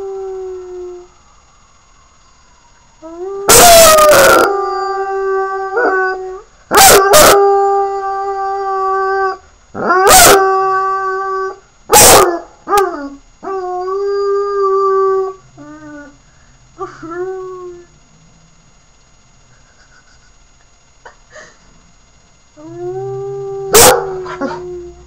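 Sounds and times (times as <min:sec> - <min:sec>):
puppy howling: 0:03.4 - 0:16.2, 0:22.6 - 0:25.0.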